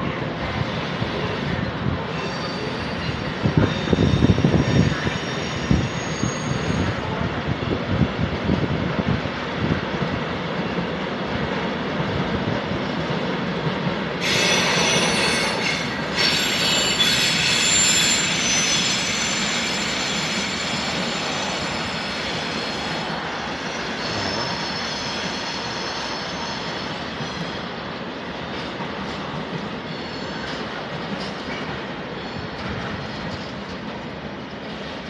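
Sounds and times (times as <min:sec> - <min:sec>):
train wheels rumbling on rails: 0:00.0 - 0:35.0
high-pitched wheel squeal: 0:02.2 - 0:07.0, 0:14.2 - 0:22.9.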